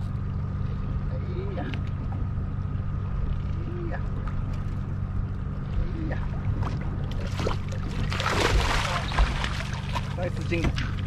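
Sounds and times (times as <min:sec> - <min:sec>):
boat engine idling: 0:00.0 - 0:11.0
water splashing: 0:06.2 - 0:11.0.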